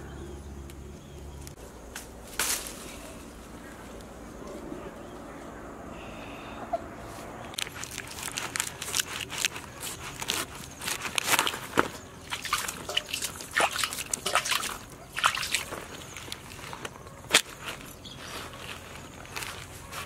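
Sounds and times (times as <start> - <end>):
knife cutting fruit rind: 7.7 - 17.7.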